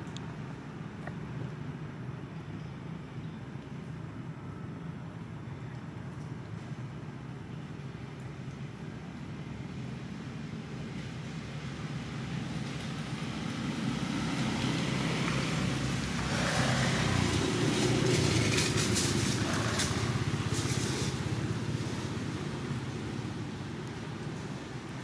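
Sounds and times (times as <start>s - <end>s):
vehicle engine rumble passing: 11.0s - 25.0s.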